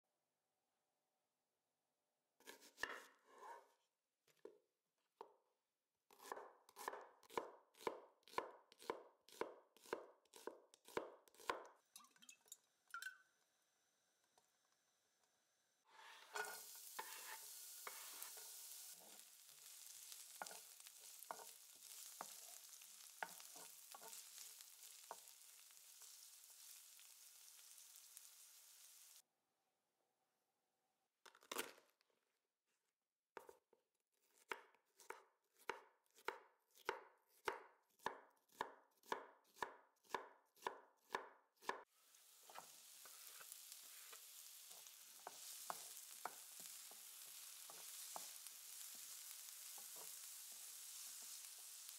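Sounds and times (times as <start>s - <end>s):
knife chopping on wooden board: 2.4s - 3.6s, 6.1s - 11.7s, 34.4s - 41.8s
wooden spatula scraping: 2.5s - 3.8s, 15.9s - 28.0s, 42.0s - 51.9s
vegetables sizzling in oil: 15.9s - 29.2s, 41.9s - 51.9s.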